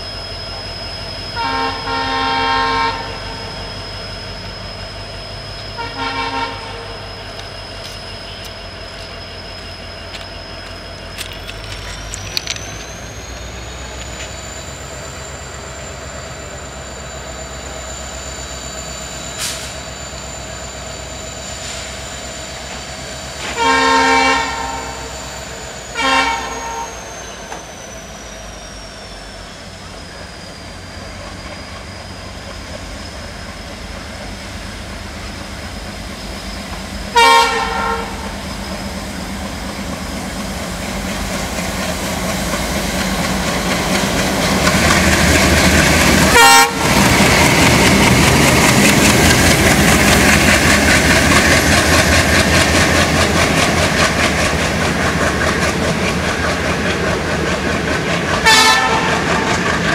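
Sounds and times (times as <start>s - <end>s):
locomotive horn blasts: 1.4s - 3.5s, 5.8s - 7.0s, 23.4s - 25.1s, 25.9s - 27.0s, 37.1s - 38.4s, 46.3s - 47.2s, 58.4s - 59.6s
diesel engines running: 4.2s - 59.9s.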